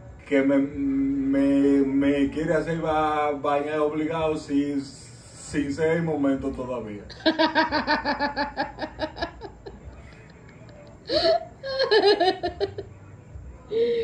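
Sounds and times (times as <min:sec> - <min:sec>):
person laughing: 0:11.1 - 0:12.8.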